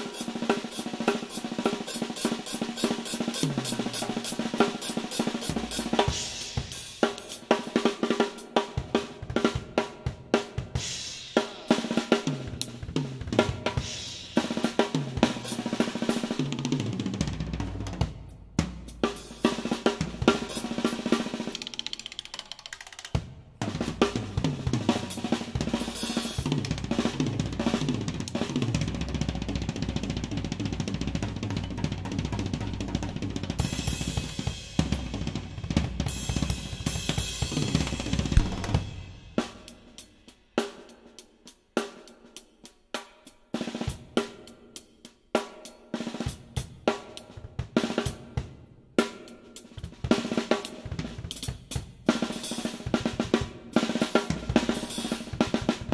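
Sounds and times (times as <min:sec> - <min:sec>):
cymbals: 0:00.0 - 0:09.6, 0:10.3 - 0:16.6, 0:18.1 - 0:22.1, 0:23.1 - 0:29.0, 0:31.2 - 0:42.2, 0:53.7 - 0:55.9
drum kit playing: 0:00.0 - 0:55.9
heavy bass drum: 0:23.6 - 0:39.6.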